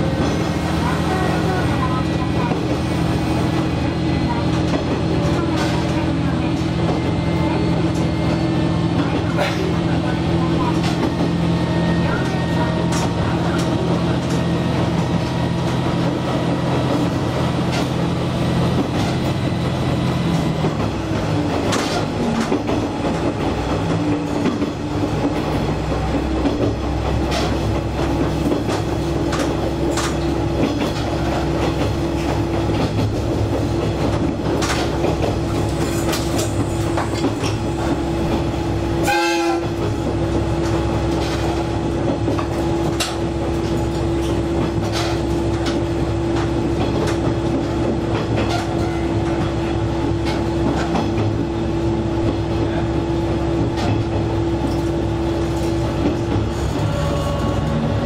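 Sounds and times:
railcar engine hum: 0.0s - 58.0s
wheels clacking over rail joints: 20.2s - 51.5s.

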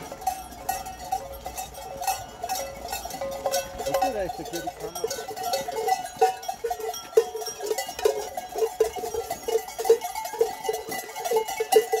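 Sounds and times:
large bells clanging: 0.0s - 12.0s.

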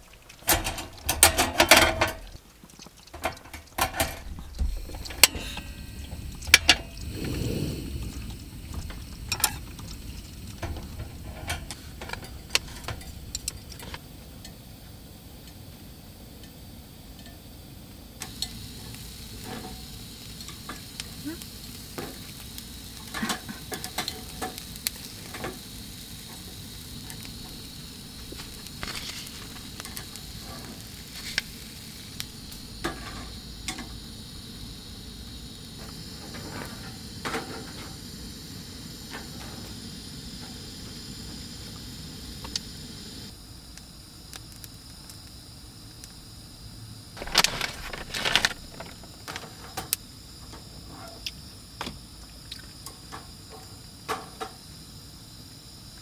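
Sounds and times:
food sizzling in a pan: 0.0s - 56.0s
utensils clicking against pan: 0.1s - 4.2s, 9.3s - 14.6s, 23.0s - 25.6s.

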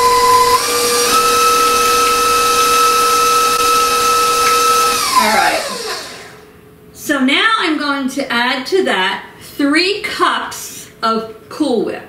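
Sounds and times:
stand mixer whining: 0.0s - 6.4s.

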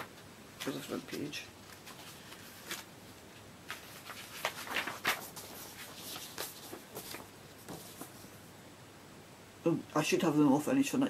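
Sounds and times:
paper pages rustling: 0.0s - 8.4s.

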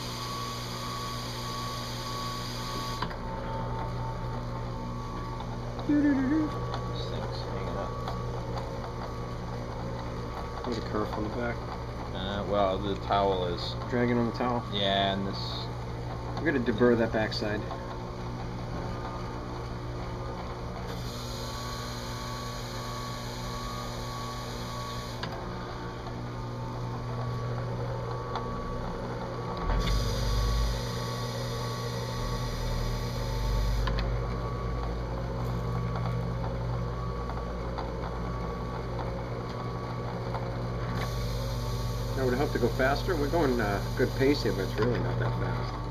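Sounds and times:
drill press humming: 0.0s - 45.9s.

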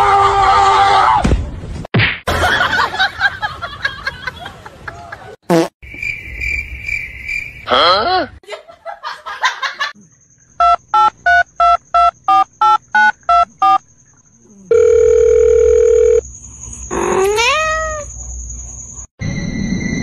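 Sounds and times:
steady phone tone: 14.7s - 16.2s.

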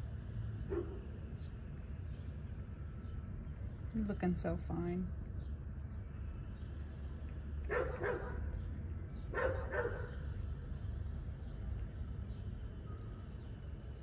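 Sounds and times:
dog barking: 0.7s - 1.0s, 7.7s - 8.5s, 9.3s - 10.2s.

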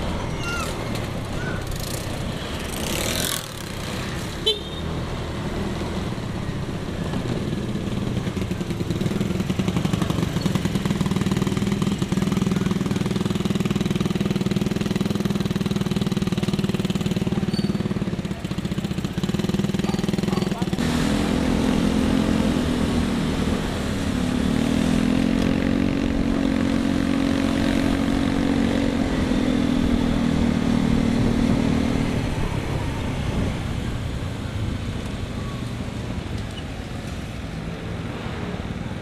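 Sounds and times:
road noise: 0.0s - 39.0s
motorcycle engine running: 7.5s - 32.6s.

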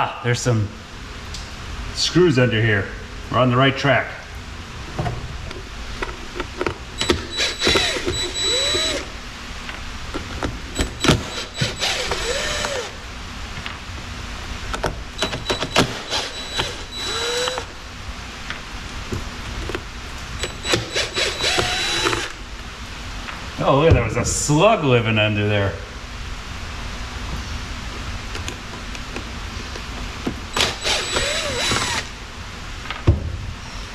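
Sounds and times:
tool and screw clicks: 6.6s - 9.1s, 15.2s - 17.7s, 20.4s - 22.4s, 30.5s - 32.1s
cordless drill whining: 7.0s - 9.2s, 10.8s - 13.0s, 15.2s - 17.8s, 20.4s - 22.4s, 30.5s - 32.2s.

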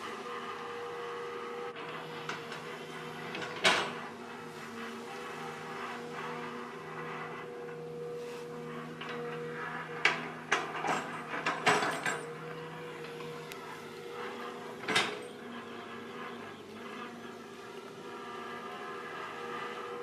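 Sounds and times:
excavator engine running: 0.0s - 20.0s
metal clanks and knocks: 2.2s - 4.1s, 9.0s - 13.4s, 14.2s - 15.5s.

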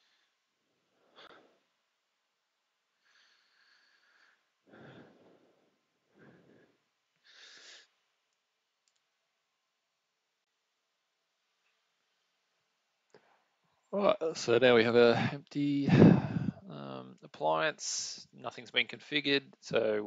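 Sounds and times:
breathing and sniffing: 3.0s - 8.0s, 15.9s - 16.7s.

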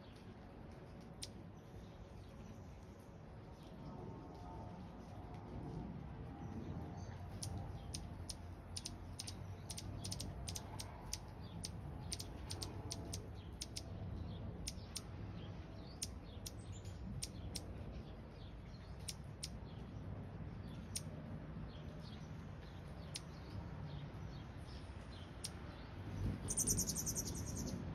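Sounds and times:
steady low background hum: 0.0s - 27.9s
hummingbird chip notes: 7.3s - 13.9s.

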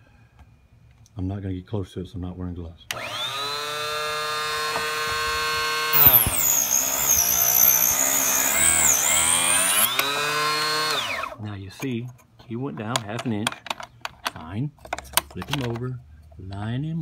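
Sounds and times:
electric saw motor whining: 2.9s - 11.4s
saw blade screeching into wood: 5.8s - 11.4s.

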